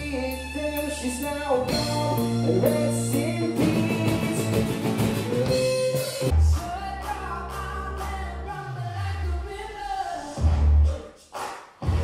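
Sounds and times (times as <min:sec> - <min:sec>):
drums: 0:00.0 - 0:08.2, 0:10.2 - 0:12.0
electric bass: 0:00.0 - 0:11.0
strummed acoustic guitar: 0:01.7 - 0:06.3.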